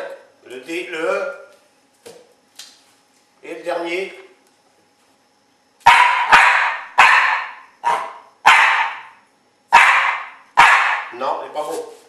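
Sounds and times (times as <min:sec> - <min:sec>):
dog barking: 0:05.8 - 0:11.2.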